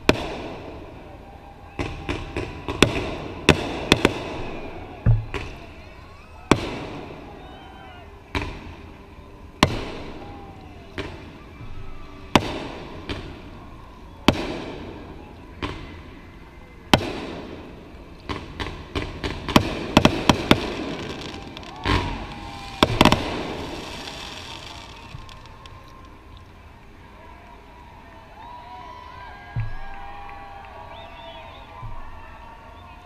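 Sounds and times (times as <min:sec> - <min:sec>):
fireworks bangs with echo: 0:00.0 - 0:07.3, 0:09.6 - 0:16.0, 0:16.9 - 0:26.2
deep firework boom: 0:19.8 - 0:25.8.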